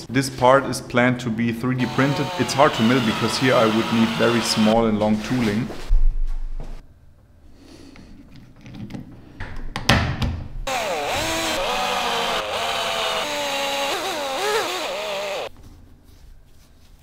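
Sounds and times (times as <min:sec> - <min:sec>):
cordless drill driving screws: 0:01.8 - 0:04.8, 0:10.7 - 0:15.5.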